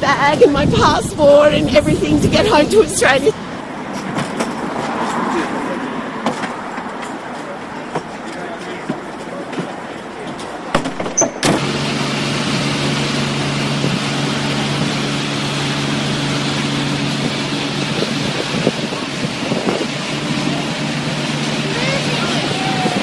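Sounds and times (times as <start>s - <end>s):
boat engine droning: 0.0s - 3.8s, 11.3s - 23.0s
rushing churning water: 11.6s - 23.0s.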